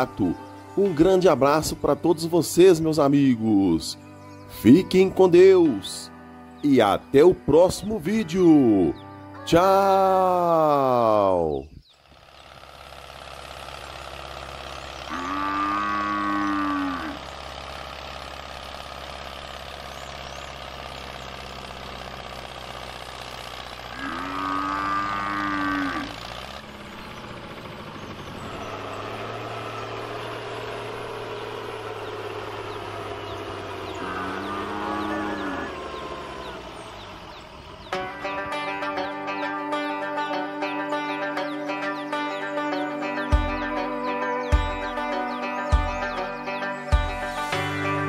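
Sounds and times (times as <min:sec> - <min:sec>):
cattle mooing: 0:15.1 - 0:17.3, 0:23.8 - 0:26.6, 0:33.0 - 0:36.8.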